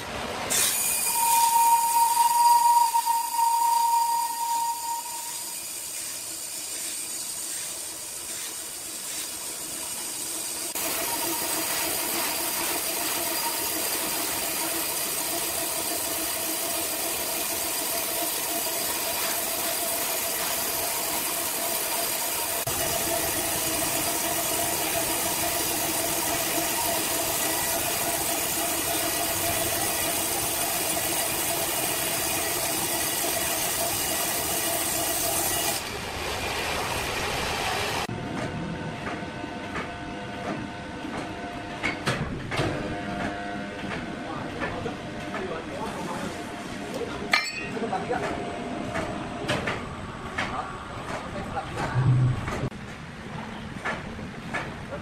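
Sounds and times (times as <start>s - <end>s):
band saw cutting log: 0.5s - 36.0s.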